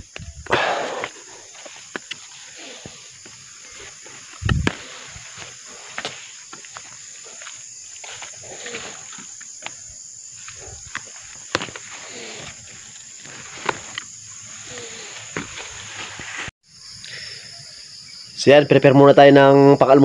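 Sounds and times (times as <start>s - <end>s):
high-pitched insect drone: 0.0s - 20.0s
rustling: 1.2s - 16.5s.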